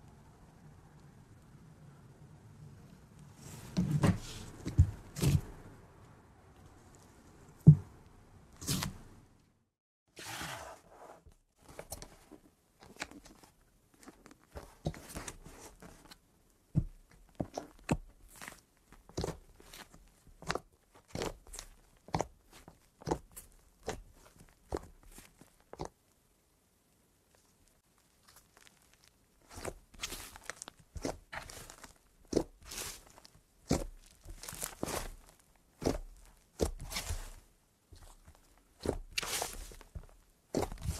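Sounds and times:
fingers squishing slime: 16.8s - 26.0s, 28.1s - 40.9s.

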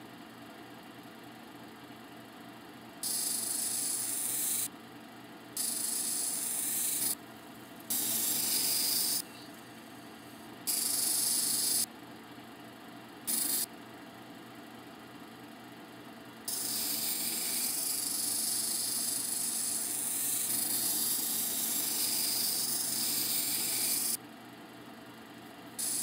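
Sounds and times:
machine motor running: 3.1s - 4.6s, 5.6s - 7.2s, 7.9s - 9.4s, 10.7s - 11.8s
stone grinding on diamond wheel: 5.6s - 7.1s.

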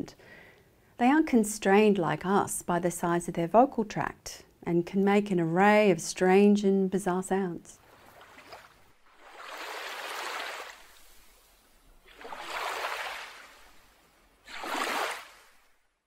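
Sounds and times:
ocean waves washing in: 7.8s - 15.8s.

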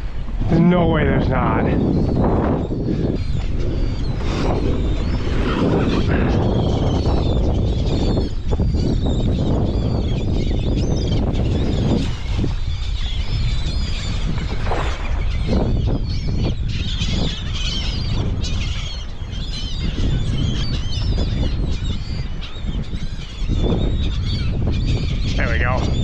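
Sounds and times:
seagulls calling: 0.0s - 26.0s
wind rumble on microphone: 0.0s - 26.0s.

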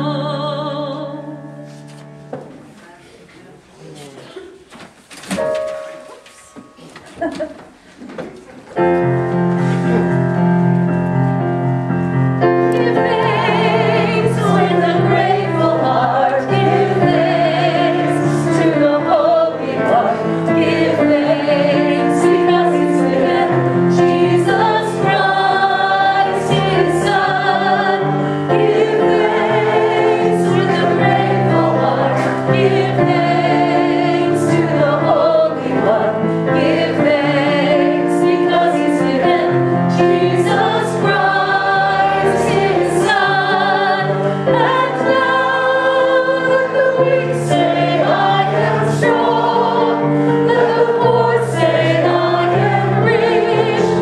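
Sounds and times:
keyboard accompaniment: 5.2s - 54.0s
congregation singing a hymn: 9.2s - 54.0s.

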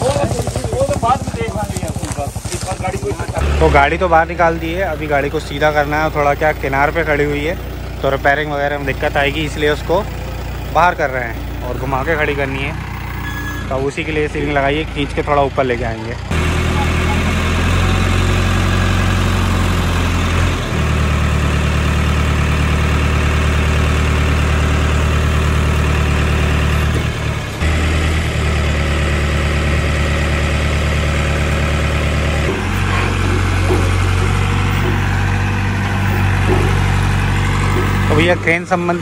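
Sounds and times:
crane diesel engine running: 0.0s - 39.0s.

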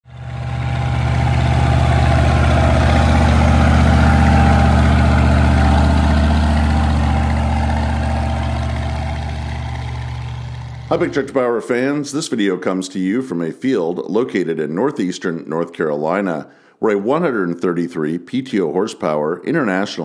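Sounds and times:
tractor diesel engine passing: 0.0s - 11.6s.

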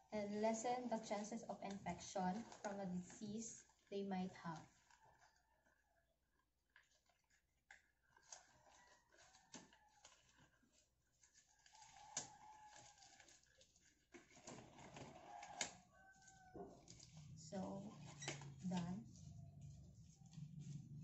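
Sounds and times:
latex gloves rustling and snapping: 6.7s - 17.4s.

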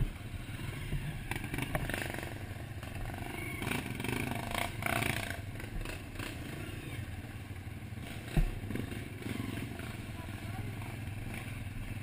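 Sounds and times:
bikes clattering on rough ground: 0.0s - 6.6s
dirt bike engines at low revs: 0.0s - 12.0s.

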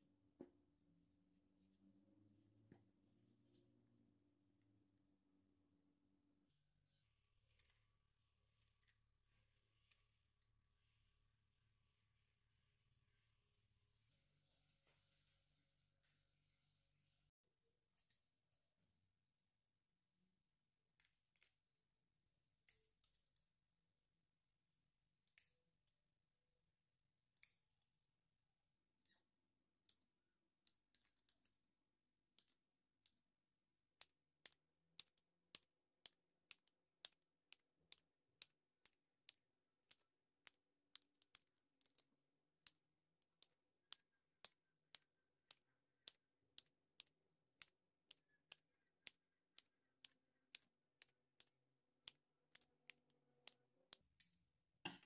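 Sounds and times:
scissors snipping dough: 32.3s - 55.0s.

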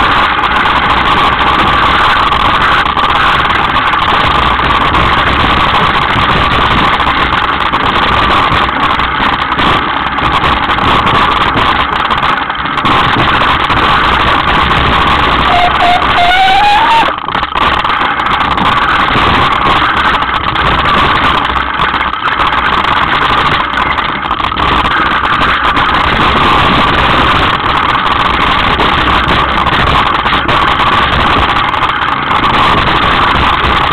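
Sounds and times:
mountain bike rattling on rocky trail: 0.0s - 33.9s
wind rushing over microphone: 0.0s - 33.9s
short rising squeal: 15.5s - 17.2s.

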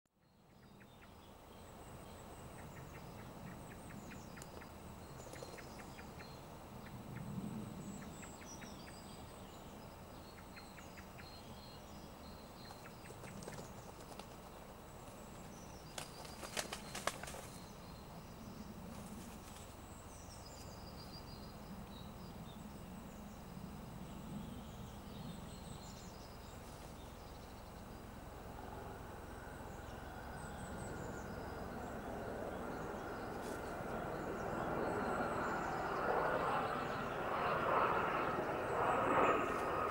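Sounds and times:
small birds chirping: 0.2s - 39.9s
low background rumble: 0.6s - 39.9s.

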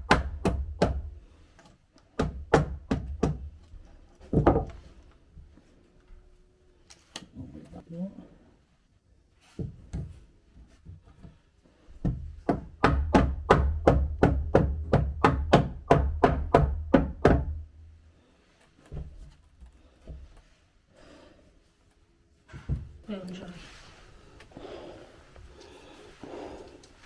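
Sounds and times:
hammer striking wood: 0.0s - 1.1s, 2.1s - 3.5s, 12.0s - 17.6s.

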